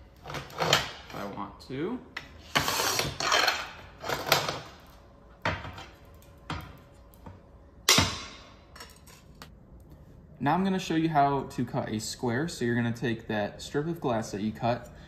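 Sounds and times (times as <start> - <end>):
glass cutter scoring glass: 2.4 - 4.6.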